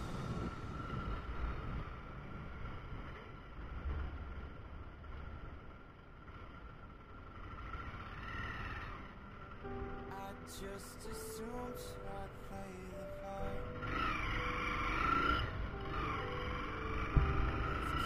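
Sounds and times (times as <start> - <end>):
motorcycle engine running: 0.1 - 10.0.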